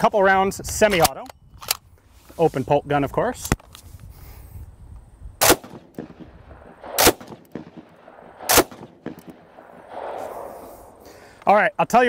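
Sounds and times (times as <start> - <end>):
rifle shots with echo: 5.4 - 11.1.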